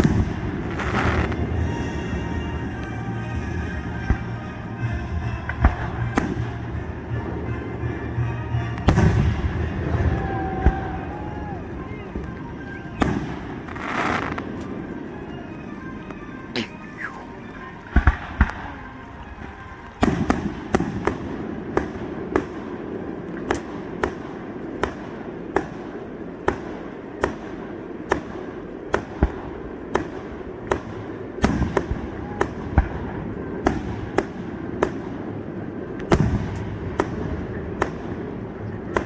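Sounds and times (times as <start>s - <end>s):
fireworks banging: 0.0s - 39.0s.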